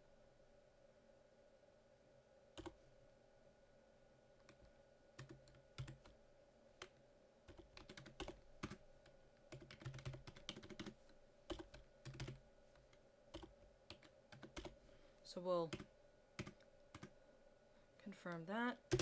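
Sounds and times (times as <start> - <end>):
faint steady hum: 0.0 - 19.0
keyboard typing: 2.6 - 2.8, 4.4 - 6.2, 6.8 - 14.8, 15.7 - 17.2.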